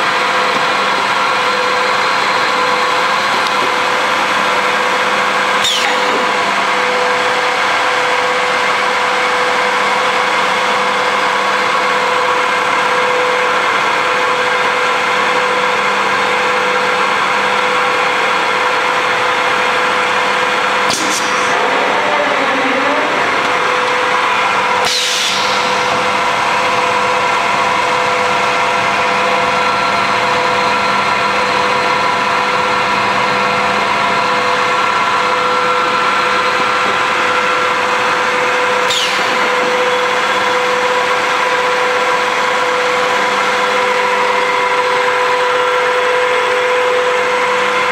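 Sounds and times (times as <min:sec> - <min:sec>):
sharp falling high-pitched sound: 0:05.6 - 0:06.5
electric motor machine humming: 0:16.0 - 0:47.8.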